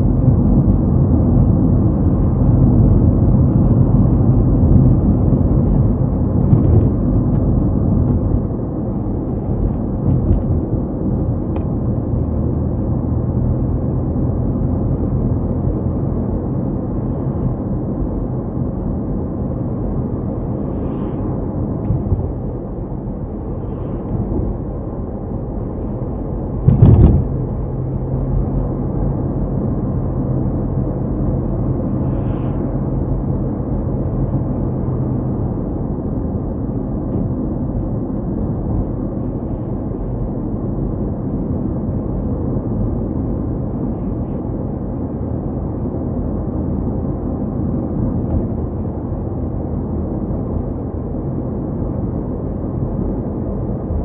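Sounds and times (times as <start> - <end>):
car engine and tyre rumble: 0.0 - 54.0
loud thump: 26.6 - 27.3.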